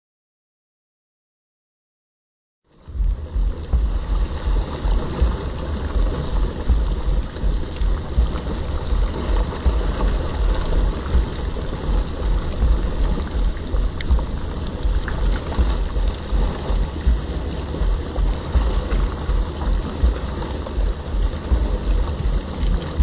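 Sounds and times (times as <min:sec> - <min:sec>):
mud pot bubbling: 0:02.8 - 0:23.0.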